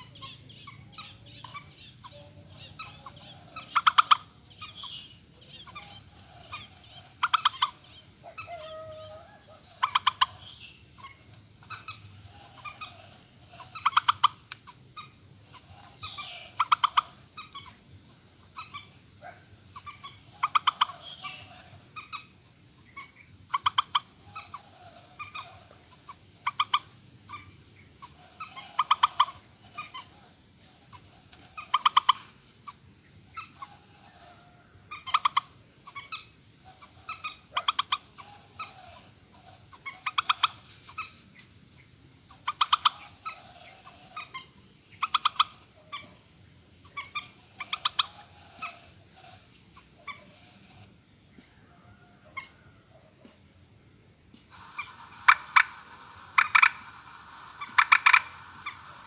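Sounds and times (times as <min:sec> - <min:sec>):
bird calling rapid sharp notes: 0:42.3 - 0:46.2, 0:54.5 - 0:59.0.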